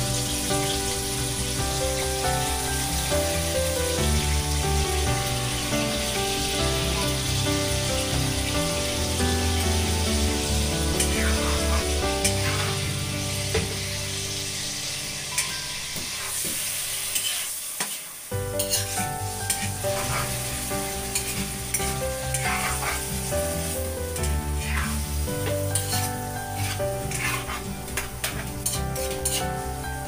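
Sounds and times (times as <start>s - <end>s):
background music: 0.0s - 17.1s, 18.3s - 30.0s
liver sizzling in a wok: 0.0s - 30.0s
metal spatula scraping a pan: 10.9s - 12.9s, 14.4s - 29.7s.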